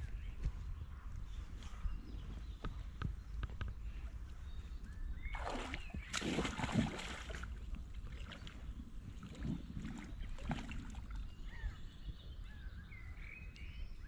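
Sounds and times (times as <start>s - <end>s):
wind rumble on microphone: 0.0s - 14.0s
water splashing and sloshing: 5.3s - 11.4s.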